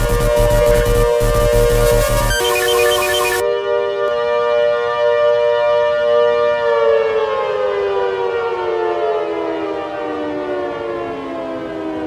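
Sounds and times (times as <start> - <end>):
siren winding down: 0.0 - 3.5.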